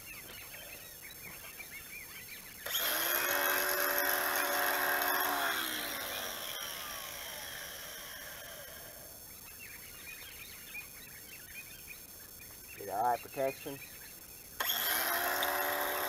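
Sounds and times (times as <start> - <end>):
angle grinder whining: 2.6 - 9.1, 14.6 - 16.0.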